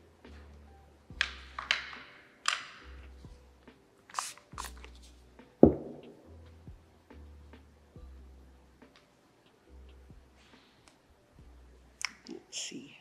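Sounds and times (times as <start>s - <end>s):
knock on table: 5.6s - 6.1s.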